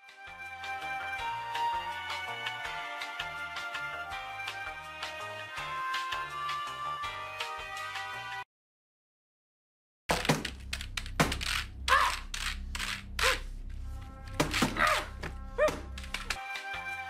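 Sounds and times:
film music: 0.0 - 8.4, 10.5 - 17.0
computer being smashed: 10.1 - 11.8.

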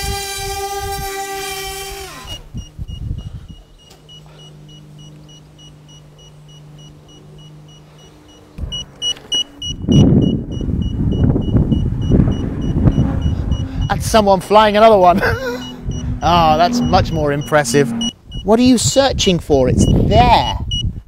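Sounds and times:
small propeller motor hum: 0.0 - 14.0, 14.6 - 18.4
short high beeps: 2.3 - 14.0, 15.5 - 18.5
loud rumbling noise: 9.8 - 18.4.

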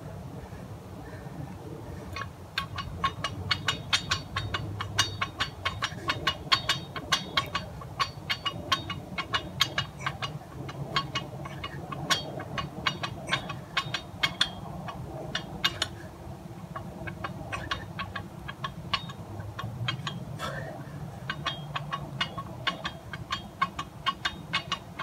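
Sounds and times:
low background rumble: 0.0 - 25.0
barbell metallic clicks and clinks: 2.1 - 16.0, 16.6 - 20.4, 21.2 - 25.0.

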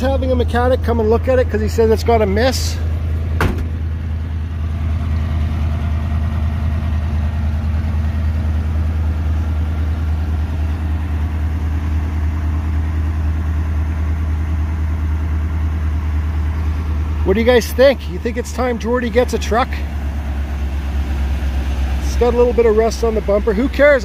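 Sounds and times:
man talking: 0.0 - 2.9, 17.2 - 19.9, 22.0 - 24.0
truck engine idling: 0.0 - 24.0.

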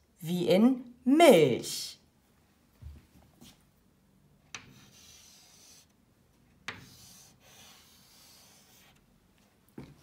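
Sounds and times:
chalk writing on chalkboard: 4.6 - 6.0, 6.7 - 9.0.

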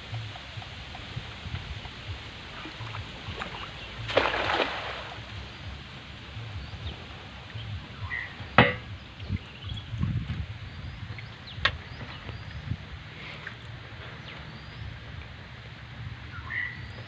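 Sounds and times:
net splashing into water: 3.4 - 5.4
sharp knock: 8.6 - 8.9.

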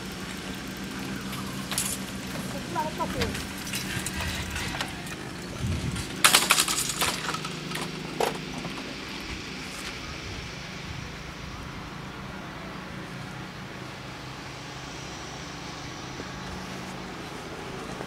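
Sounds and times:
metallic rattling of barrier booms: 3.1 - 8.5.

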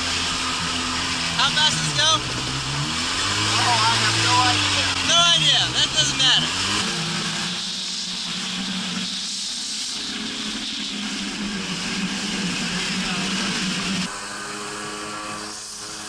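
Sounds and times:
jet ski engine running: 0.0 - 16.0.

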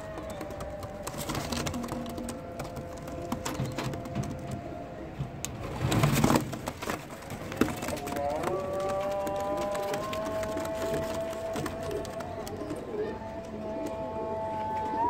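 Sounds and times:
pigeons cooing: 0.0 - 5.4, 6.0 - 15.0.

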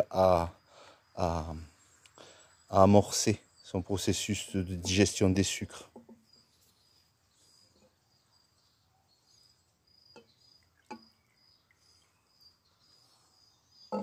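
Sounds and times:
faint insect chirping: 0.0 - 14.0.

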